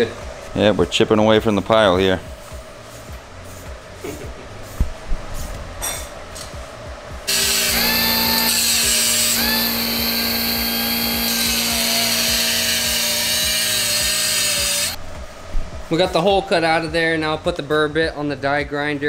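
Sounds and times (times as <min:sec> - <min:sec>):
power tool cutting metal: 0:07.3 - 0:15.0.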